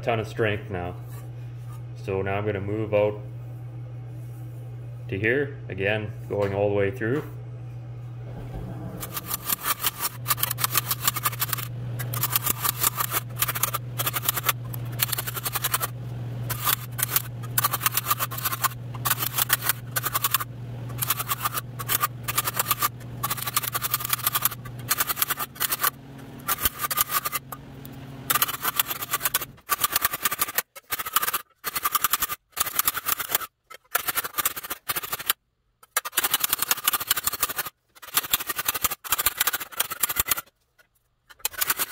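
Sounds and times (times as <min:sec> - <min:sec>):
steady low hum: 0:00.0 - 0:29.7.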